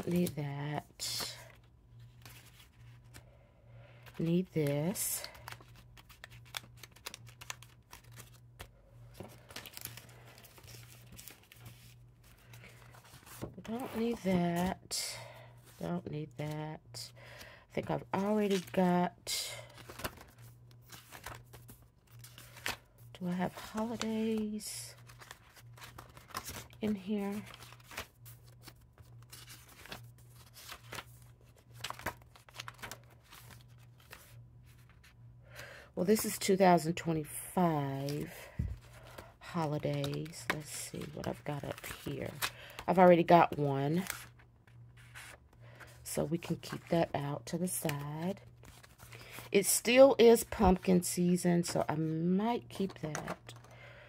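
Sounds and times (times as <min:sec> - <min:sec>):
paper pages rustling: 0:00.0 - 0:03.2, 0:04.0 - 0:14.8, 0:18.0 - 0:18.8, 0:19.6 - 0:35.2, 0:38.0 - 0:43.0, 0:43.8 - 0:46.9, 0:47.7 - 0:49.5, 0:52.7 - 0:53.7.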